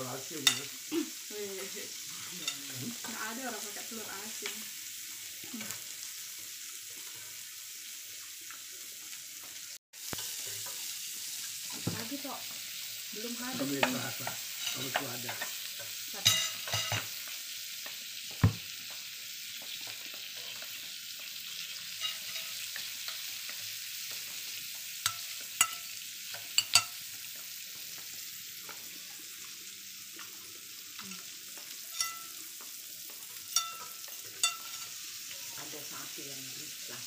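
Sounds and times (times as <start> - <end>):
food sizzling on grill plate: 0.0 - 37.0.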